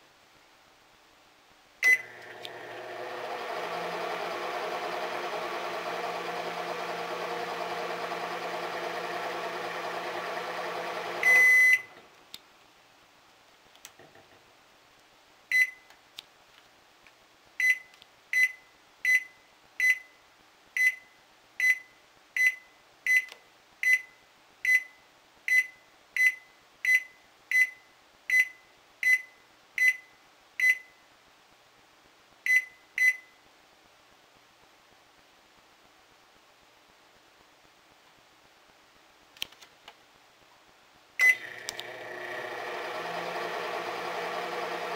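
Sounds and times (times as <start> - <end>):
microwave long beep: 1.8 - 12.0, 41.2 - 44.9
microwave oven humming: 1.9 - 12.1, 41.2 - 44.9
short keypad beeps: 11.2 - 11.9.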